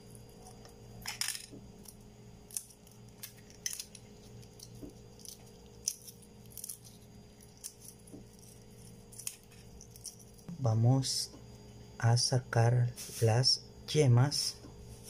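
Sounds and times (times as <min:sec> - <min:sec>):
eggshell crackling: 0:01.8 - 0:10.6.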